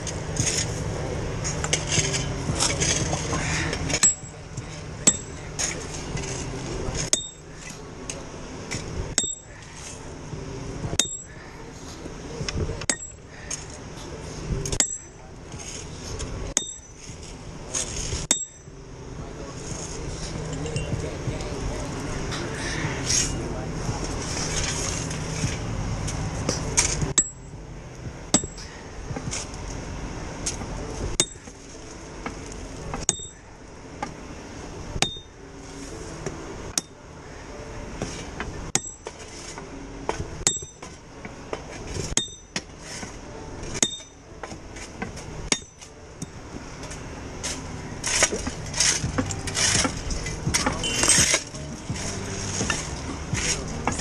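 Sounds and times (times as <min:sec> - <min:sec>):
maul clanking on steel spike: 0:07.0 - 0:07.8, 0:28.3 - 0:29.5, 0:32.9 - 0:33.4, 0:35.0 - 0:35.3, 0:38.0 - 0:41.0, 0:41.9 - 0:54.0.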